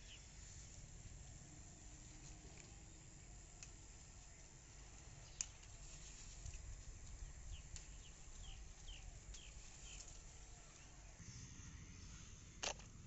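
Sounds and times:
low outdoor background: 0.0s - 13.0s
bird chirping: 7.0s - 12.3s.

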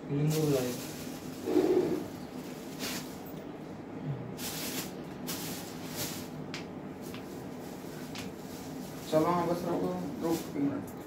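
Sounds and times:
low room hum: 0.0s - 11.0s
plastic rustling and crinkling: 0.1s - 3.5s, 4.4s - 11.0s.

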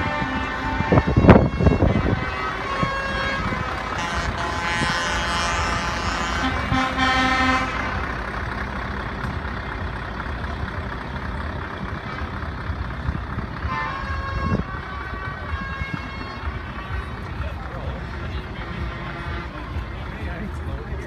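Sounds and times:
truck air horn: 0.0s - 8.5s, 11.9s - 12.7s, 13.5s - 20.6s
outdoor background noise: 0.0s - 21.0s.

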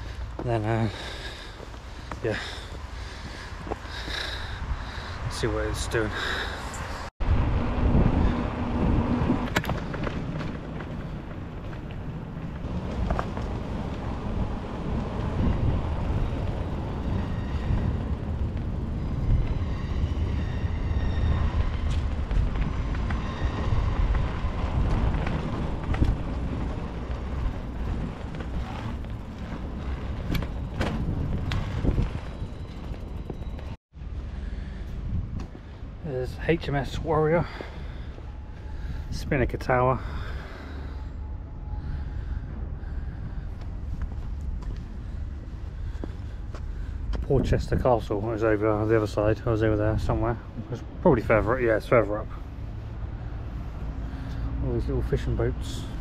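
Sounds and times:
wind on microphone: 6.7s - 11.6s, 12.2s - 33.5s
bicycle rolling over cobblestones: 8.8s - 19.6s, 21.6s - 33.8s
low rumble: 40.0s - 48.2s.

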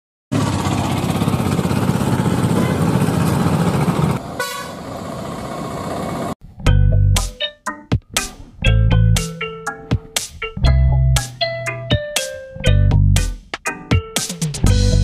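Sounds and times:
guitar music: 6.6s - 15.0s.

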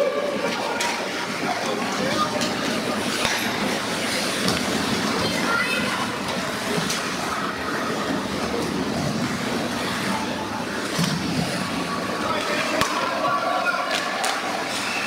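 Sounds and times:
hockey sticks and puck clacking: 0.5s - 5.5s, 12.2s - 15.0s.

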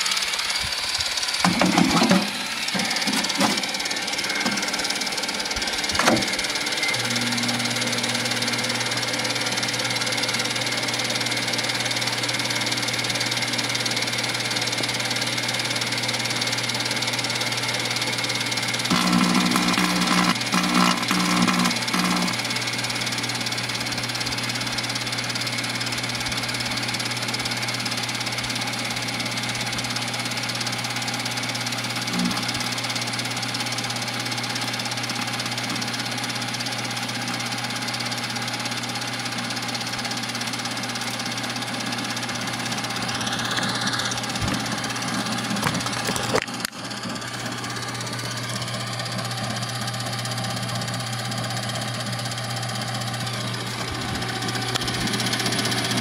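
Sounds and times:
microwave oven humming: 0.0s - 56.0s.

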